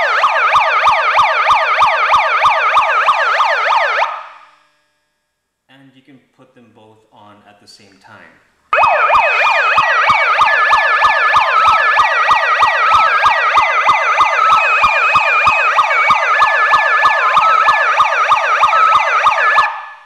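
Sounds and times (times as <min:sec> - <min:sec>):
megaphone siren whooping: 0:00.0 - 0:04.4, 0:08.8 - 0:20.0
electronic beeping melody: 0:13.8 - 0:19.1.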